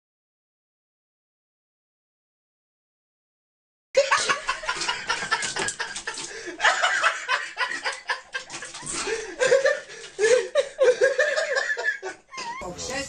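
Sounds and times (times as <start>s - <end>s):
people laughing: 4.0s - 12.7s.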